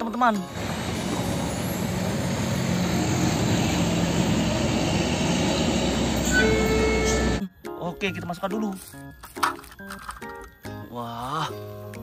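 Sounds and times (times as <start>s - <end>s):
road noise: 0.4s - 7.4s
truck engine hum: 0.4s - 7.4s.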